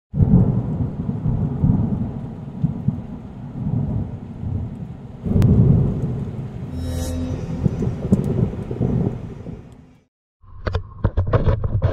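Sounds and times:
steady rain: 0:00.2 - 0:06.7
thunder rumbling: 0:00.2 - 0:06.7, 0:07.5 - 0:09.9
thunder crack: 0:05.2 - 0:06.7, 0:07.6 - 0:09.7.

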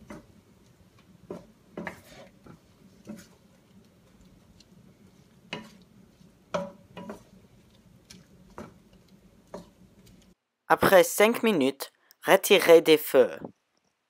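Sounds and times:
faint sizzle: 0:00.0 - 0:10.4
wooden spatula scraping pan: 0:00.0 - 0:10.4.

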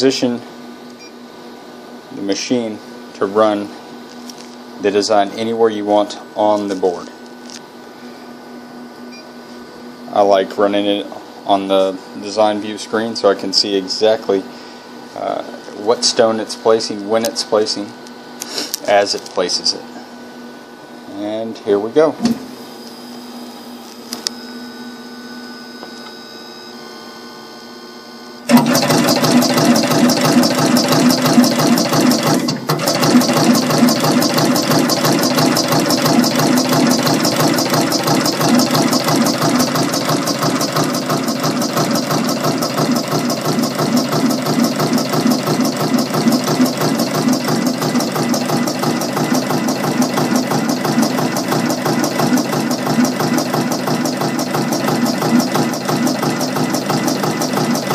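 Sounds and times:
machine humming: 0:00.0 - 0:57.9
fast mechanical chatter: 0:28.5 - 0:57.9.

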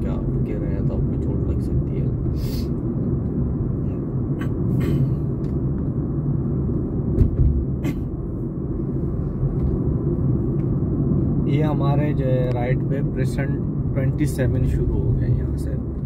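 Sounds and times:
road and engine rumble: 0:00.0 - 0:16.0
brief low thump: 0:07.1 - 0:07.8.

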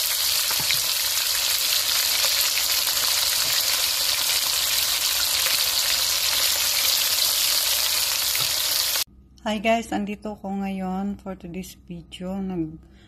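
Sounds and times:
meat sizzling in oil: 0:00.0 - 0:09.1.

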